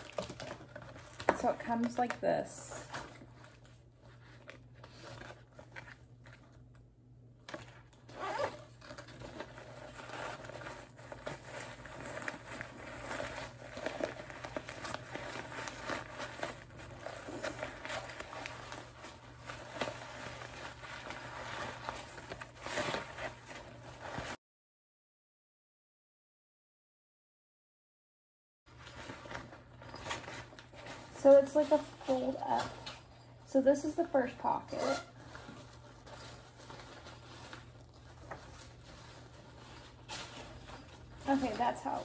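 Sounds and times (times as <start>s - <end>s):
fabric rustling and scraping: 7.4s - 24.4s, 28.7s - 42.0s
zipper on canvas pouch: 8.1s - 10.4s, 34.5s - 35.2s.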